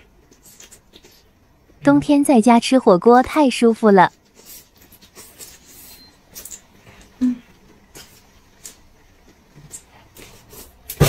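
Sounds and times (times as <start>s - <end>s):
person humming: 7.2s - 7.5s.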